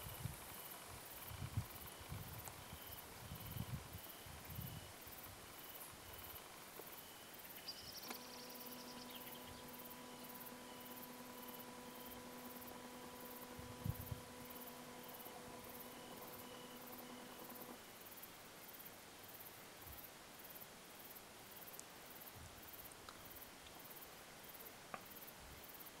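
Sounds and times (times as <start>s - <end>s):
faint crickets chirping: 0.0s - 26.0s
low hum: 7.6s - 17.8s.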